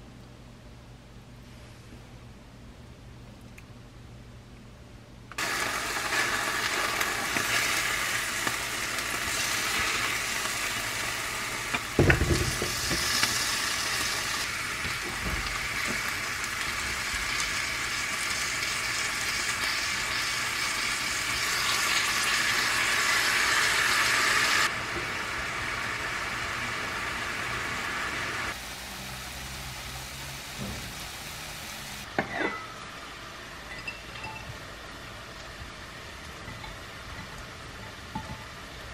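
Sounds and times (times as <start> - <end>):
fish fillets sizzling in a pan: 5.4 - 32.0
thump: 12.0 - 13.0, 30.6 - 30.9.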